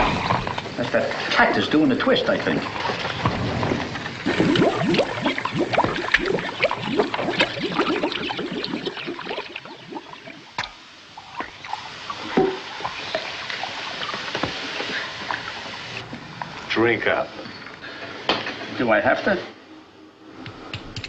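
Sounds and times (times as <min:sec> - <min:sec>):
liquid bubbling and gurgling: 0:00.0 - 0:16.7.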